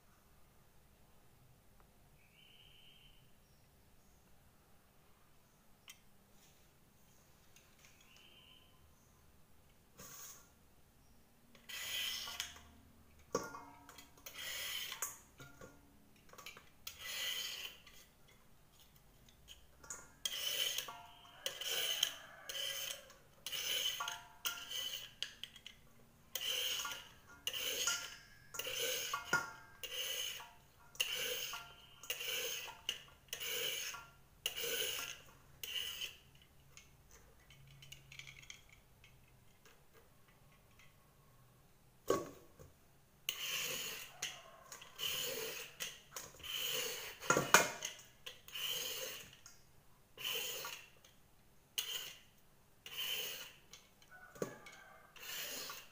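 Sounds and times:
peeler rasping gourd skin: 11.6s - 12.7s, 14.2s - 15.2s, 16.8s - 18.2s, 20.2s - 25.6s, 26.3s - 36.3s, 43.3s - 49.4s, 50.2s - 51.0s, 51.8s - 55.9s.

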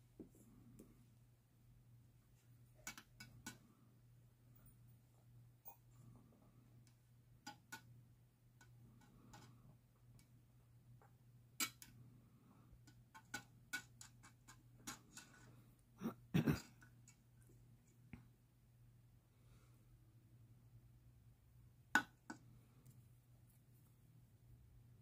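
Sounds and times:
low steady hum: 0.0s - 25.0s
tool tapping plastic cup: 22.0s - 22.4s.

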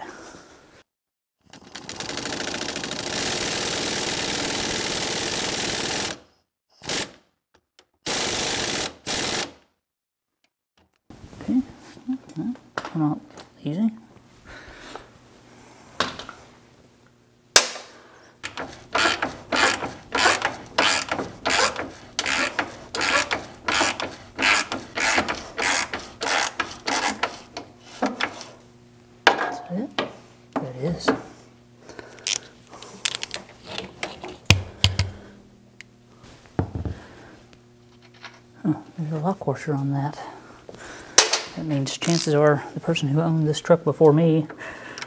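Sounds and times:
socket ratchet clicking: 18.4s - 28.4s.

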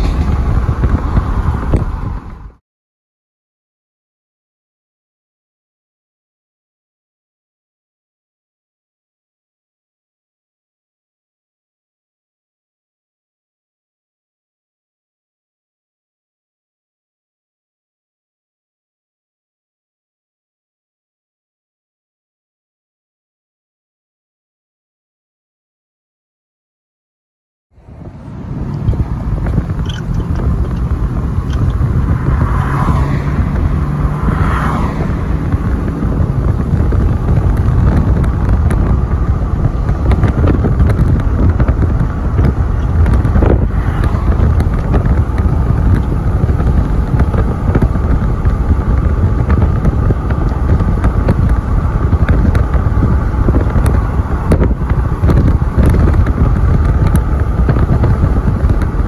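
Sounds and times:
freight train rumbling past: 0.0s - 2.6s
road traffic: 0.0s - 2.6s, 27.7s - 59.0s
wind buffeting microphone: 0.0s - 2.6s, 27.8s - 59.0s.

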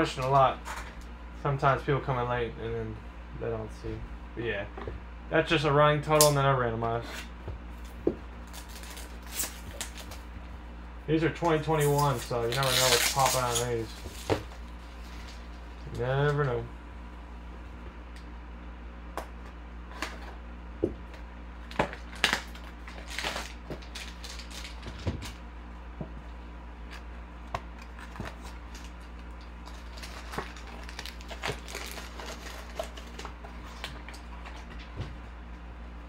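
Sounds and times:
steady low hum: 0.0s - 36.0s
foil wrappers crinkling: 8.4s - 10.3s, 11.5s - 16.4s, 21.6s - 25.4s, 27.7s - 34.9s.

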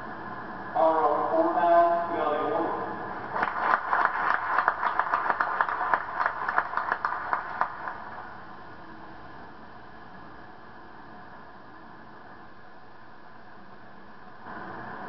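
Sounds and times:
audience clapping: 3.3s - 8.4s.

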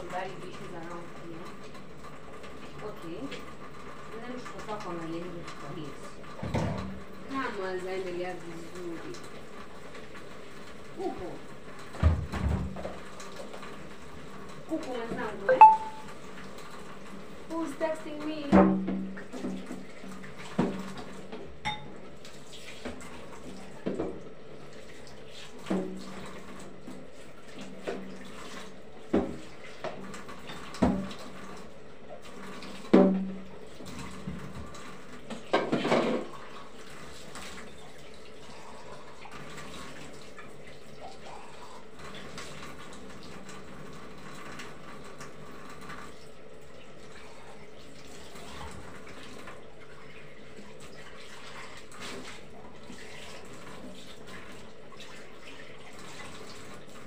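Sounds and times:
tap water running into sink: 0.0s - 57.0s
pots and dishes clinking: 15.5s - 16.1s, 21.6s - 22.0s.

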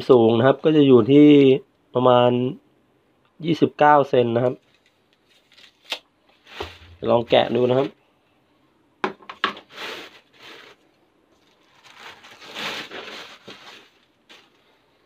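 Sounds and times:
plastic wrapping crinkling: 4.6s - 7.9s, 9.6s - 14.8s.

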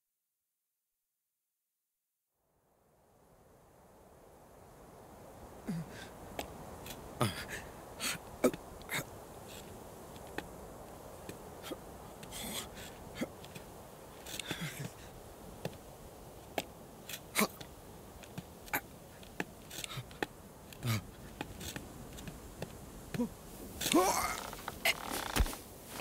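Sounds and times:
steady low film hiss: 2.4s - 26.0s.

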